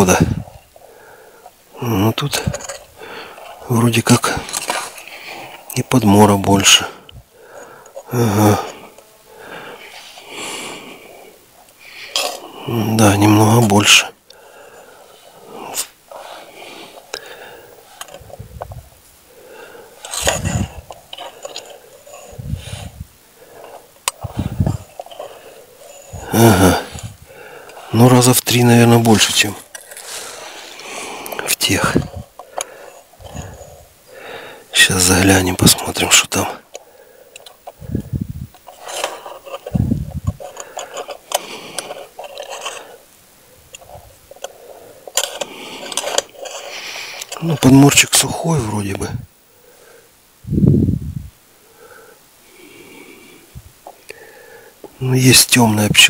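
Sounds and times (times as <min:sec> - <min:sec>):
wire scraping on wooden beehive: 0:02.0 - 0:18.6, 0:19.3 - 0:49.1
person making low vocal sounds: 0:08.1 - 0:09.8, 0:24.2 - 0:24.9, 0:26.1 - 0:27.6, 0:39.7 - 0:40.4.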